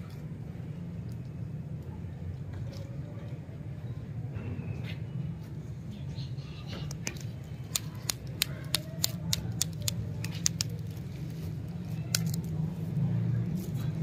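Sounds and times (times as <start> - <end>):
lollipop sticks clicking and tapping: 6.9 - 11.0, 12.0 - 12.6.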